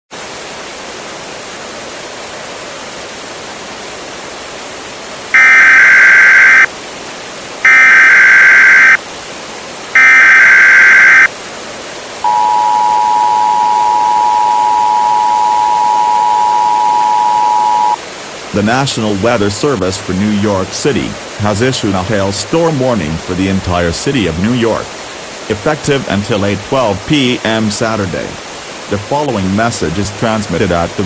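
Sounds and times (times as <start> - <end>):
static hiss: 2.9 - 31.0
digital data tones: 5.4 - 6.7, 7.7 - 9.0, 10.0 - 11.3, 12.3 - 18.0
two-tone alarm: 5.4 - 6.7, 7.6 - 9.0, 10.0 - 11.3, 12.2 - 18.0.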